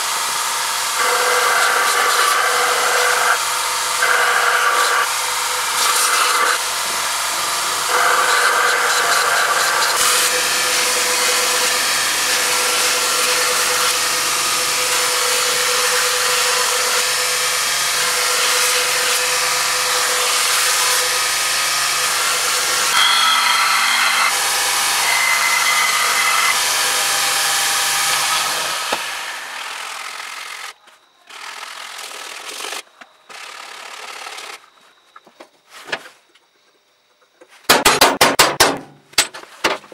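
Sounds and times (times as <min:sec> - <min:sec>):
belt grinder grinding steel: 0:00.0 - 0:30.8
motor hum: 0:02.0 - 0:30.7
high squealing tones: 0:22.6 - 0:26.6.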